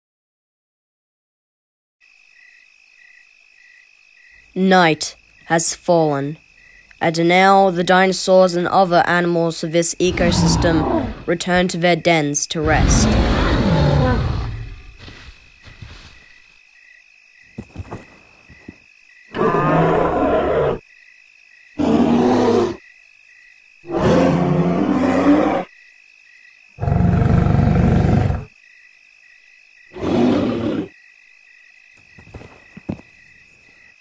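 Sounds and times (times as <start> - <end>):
night insects chirping: 2.0 - 34.0
creature roars and growls: 10.1 - 11.3, 12.7 - 14.9, 19.3 - 20.8, 21.8 - 22.8, 23.9 - 25.7, 26.8 - 28.5, 29.9 - 30.9.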